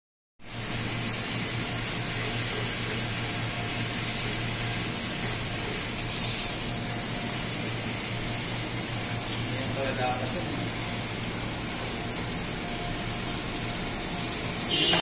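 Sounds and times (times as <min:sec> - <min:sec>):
steady machine hum: 0:00.4 - 0:15.0
strong hiss: 0:14.2 - 0:15.0.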